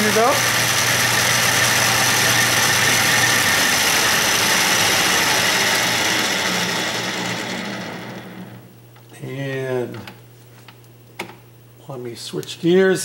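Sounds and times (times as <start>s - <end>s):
metal lathe whirring: 0.0s - 8.7s.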